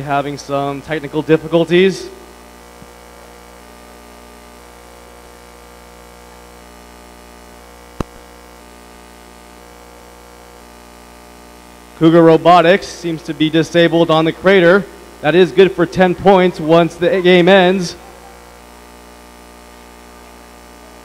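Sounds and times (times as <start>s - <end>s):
electrical hum: 0.0s - 21.0s
sharp click: 8.0s - 8.2s.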